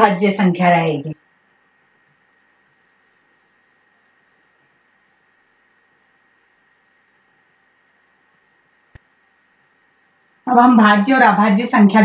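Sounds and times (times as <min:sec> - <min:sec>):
hand rubbing across glass: 0:02.0 - 0:10.6.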